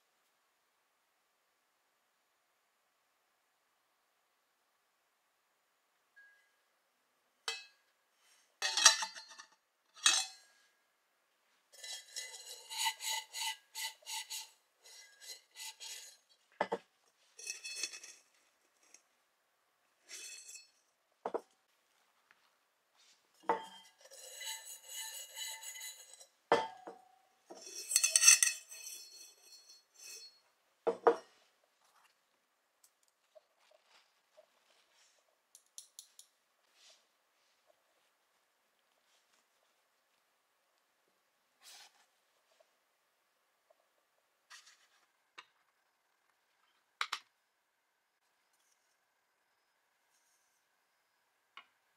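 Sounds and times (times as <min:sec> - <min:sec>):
rhythmic rubbing on steel: 0:11.8 - 0:16.2, 0:24.0 - 0:26.2.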